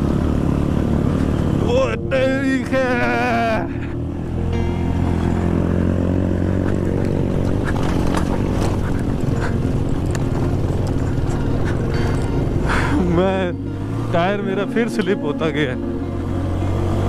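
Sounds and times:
motorcycle engine running: 0:00.0 - 0:17.0
knocks over rough track: 0:06.6 - 0:12.8.

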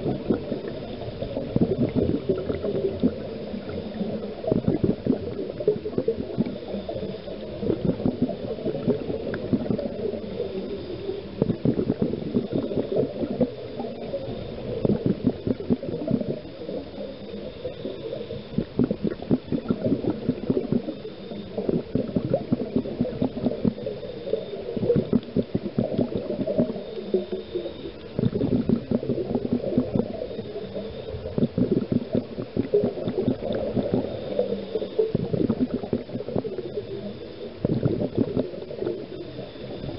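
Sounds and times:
underwater bubbling and gurgling: 0:00.0 - 0:39.9.

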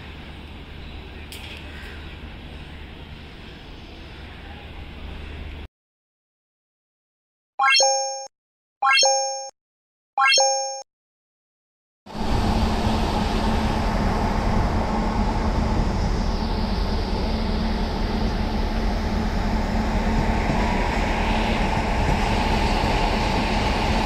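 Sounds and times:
electric train rumbling: 0:00.0 - 0:05.7, 0:12.1 - 0:24.0.

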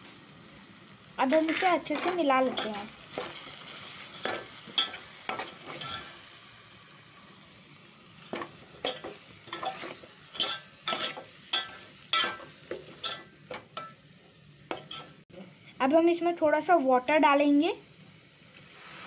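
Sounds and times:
food sizzling: 0:00.0 - 0:19.0
spoon scraping metal pot: 0:01.3 - 0:03.4, 0:04.2 - 0:06.1, 0:08.4 - 0:13.9.

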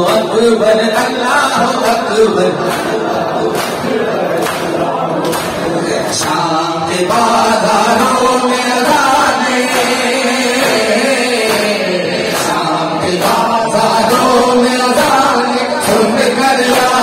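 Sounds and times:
crowd of men chanting: 0:00.0 - 0:17.0
hands slapping chests: 0:01.7 - 0:06.5, 0:09.6 - 0:13.5.

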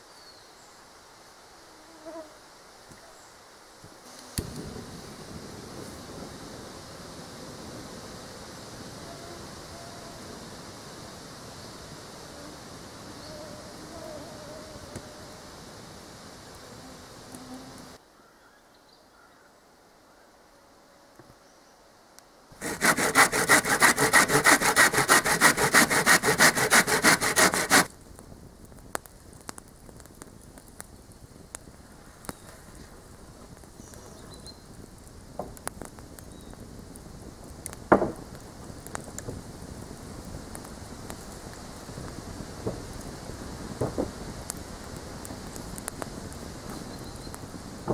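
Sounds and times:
hand saw cutting wood: 0:22.6 - 0:27.9.

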